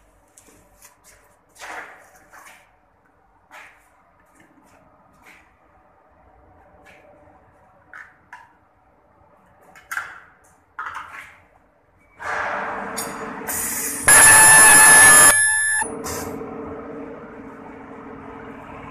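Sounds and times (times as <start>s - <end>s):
shrill welding whine: 14.1s - 15.9s
steady hum: 14.1s - 15.9s
steady machine noise: 14.1s - 15.9s.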